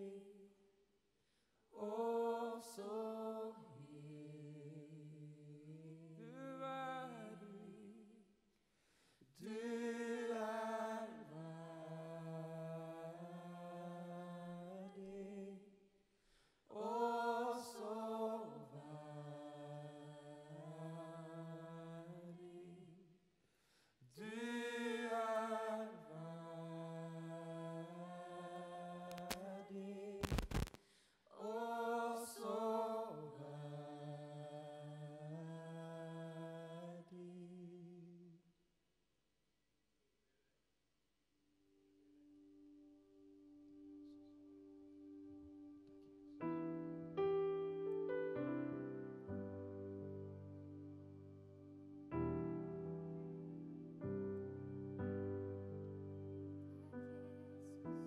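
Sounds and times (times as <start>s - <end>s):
voices singing worship song: 0.0s - 0.4s, 1.8s - 8.1s, 9.3s - 15.7s, 16.7s - 23.0s, 24.1s - 30.7s, 31.3s - 38.1s.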